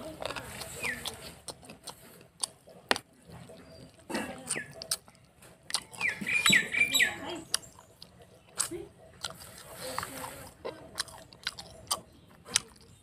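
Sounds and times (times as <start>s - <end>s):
chewing with wet mouth smacks: 0.0s - 13.0s
bird chirping: 0.5s - 9.5s.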